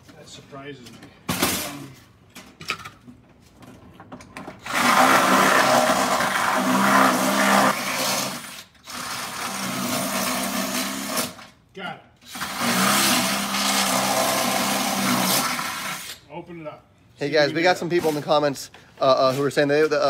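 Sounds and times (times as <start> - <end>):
cordless drill boring into metal: 4.6 - 11.4, 12.2 - 16.2.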